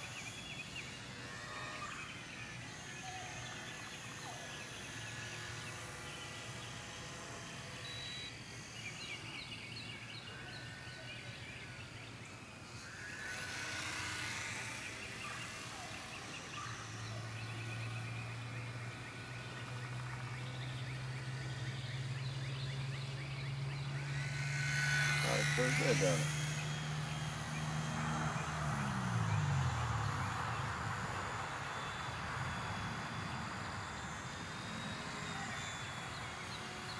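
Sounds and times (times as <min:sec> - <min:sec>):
birds chirping: 0:00.0 - 0:36.9
model airplane motor droning: 0:00.0 - 0:36.9.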